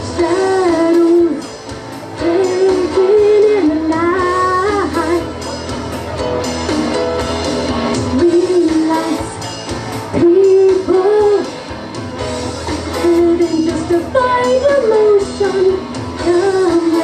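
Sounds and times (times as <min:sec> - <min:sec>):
woman singing into a microphone: 0:00.0 - 0:05.4, 0:08.0 - 0:11.8, 0:12.7 - 0:17.0
rock accompaniment: 0:00.0 - 0:17.0.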